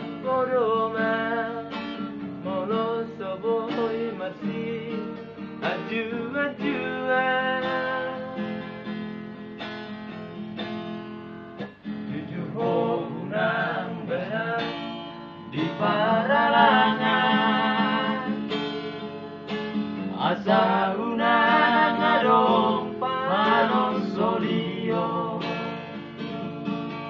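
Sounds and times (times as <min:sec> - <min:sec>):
strummed acoustic guitar: 0:00.0 - 0:27.0
men singing together: 0:02.5 - 0:08.4, 0:12.1 - 0:14.8, 0:15.5 - 0:18.5, 0:20.1 - 0:25.7.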